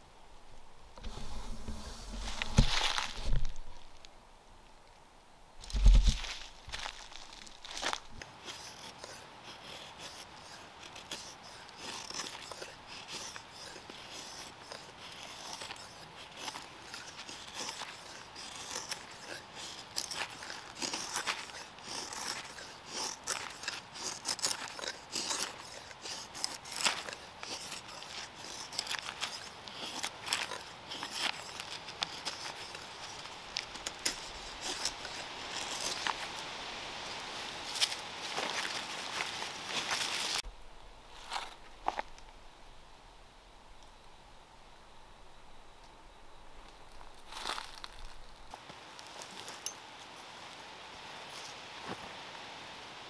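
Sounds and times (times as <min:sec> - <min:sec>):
twigs snapping and crackling: 0:05.6 - 0:08.3.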